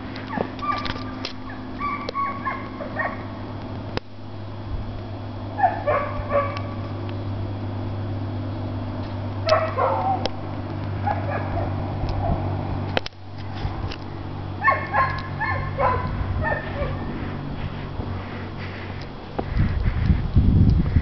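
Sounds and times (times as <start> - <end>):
low hum: 0.0 - 21.0
dog barking and yipping: 0.2 - 3.4, 5.6 - 6.8, 9.4 - 10.3, 11.0 - 12.5, 14.6 - 17.1.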